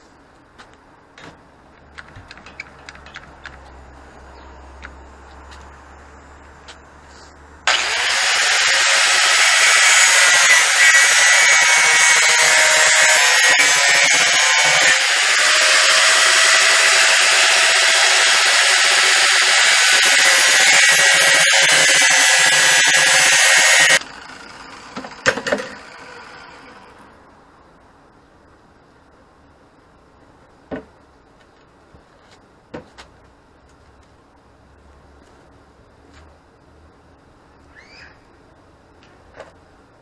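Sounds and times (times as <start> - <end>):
angle grinder grinding steel: 7.7 - 24.0.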